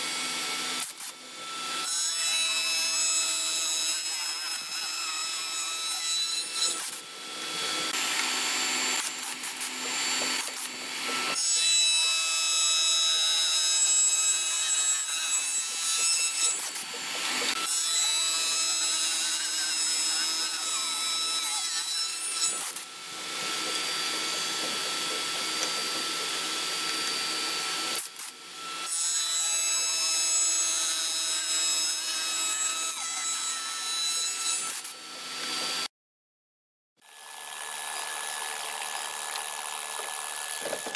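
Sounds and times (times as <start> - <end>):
cutter rasping into wood: 3.6 - 28.9.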